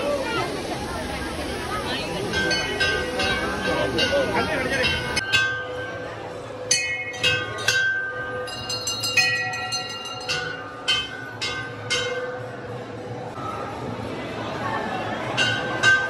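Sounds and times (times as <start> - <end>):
temple bells ringing: 1.9 - 13.1.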